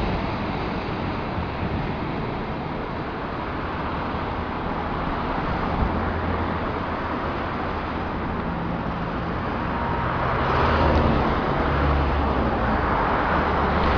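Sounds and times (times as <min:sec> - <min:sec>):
distant traffic rumble: 0:00.0 - 0:13.9.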